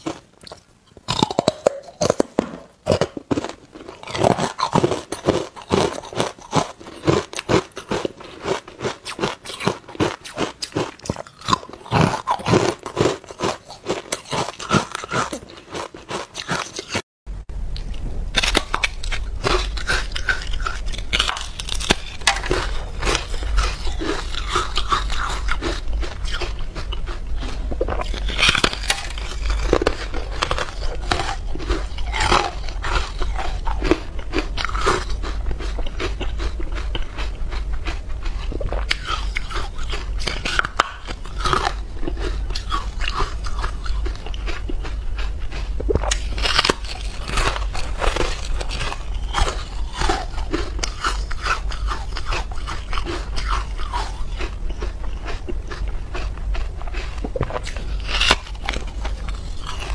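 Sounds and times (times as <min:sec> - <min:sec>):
ice crunching being chewed: 0:00.0 - 0:17.0, 0:17.8 - 0:59.9
steady low hum: 0:17.3 - 0:59.9.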